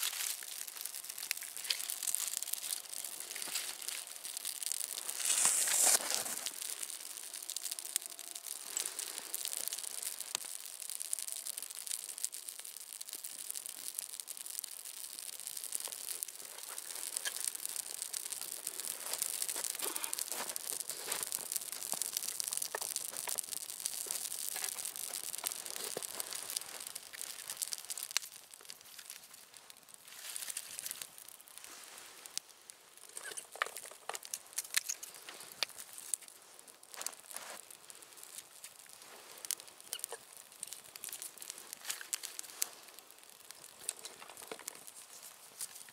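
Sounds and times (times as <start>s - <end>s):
twig fire crackling and hissing: 0.0s - 45.9s
rustle: 5.0s - 6.7s.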